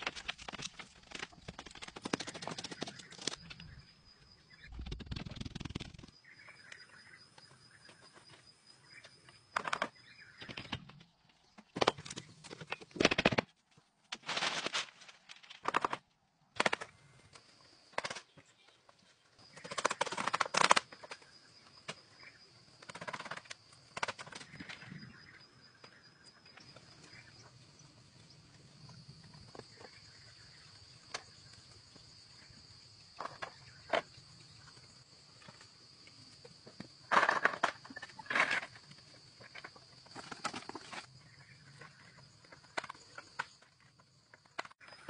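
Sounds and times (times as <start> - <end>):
bamboo rustling and clattering: 0.0 - 3.8, 9.0 - 22.2, 33.2 - 45.0.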